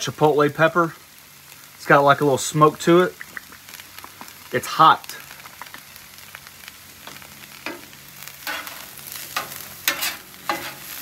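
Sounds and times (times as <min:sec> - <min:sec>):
faint sizzle: 0:00.0 - 0:11.0
metal scraper scraping griddle: 0:08.4 - 0:11.0.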